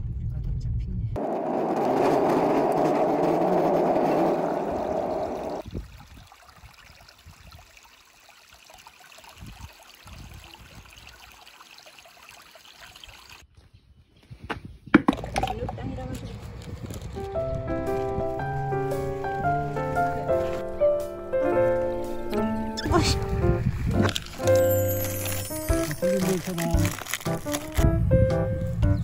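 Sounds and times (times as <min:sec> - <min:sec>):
water flowing in a channel: 0:01.2 - 0:13.5.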